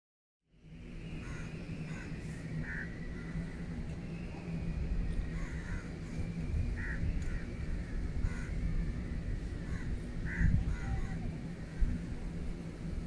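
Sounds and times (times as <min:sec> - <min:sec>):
steady low rumble: 0:00.5 - 0:13.0
crows cawing: 0:01.2 - 0:03.6, 0:05.3 - 0:06.1, 0:06.8 - 0:08.8, 0:09.6 - 0:12.0.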